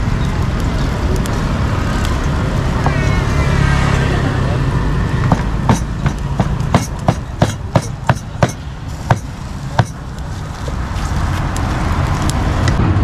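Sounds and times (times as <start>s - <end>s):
cleaver chopping on wooden block: 5.3s - 10.0s.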